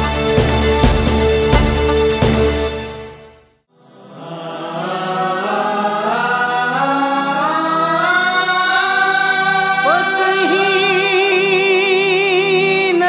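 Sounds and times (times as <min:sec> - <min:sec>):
chorus voices holding chords: 0:03.8 - 0:13.0.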